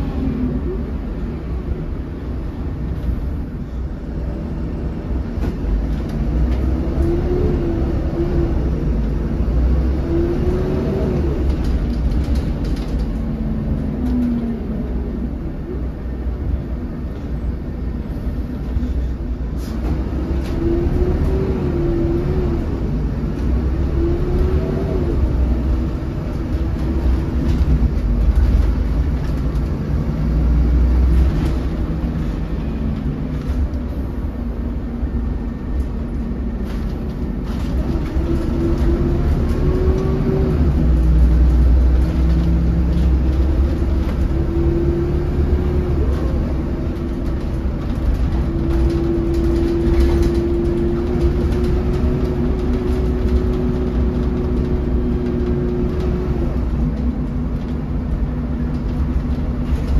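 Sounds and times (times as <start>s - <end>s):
bus engine rumble: 0.0s - 59.9s.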